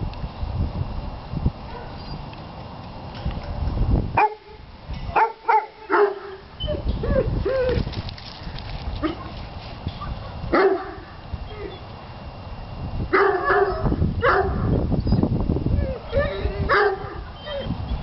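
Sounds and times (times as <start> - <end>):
dogs barking: 1.7 - 2.0, 4.2 - 6.5, 9.0 - 9.4, 10.0 - 11.9, 13.1 - 14.8, 15.8 - 17.7
dog yelps: 13.2 - 15.2, 15.8 - 17.8.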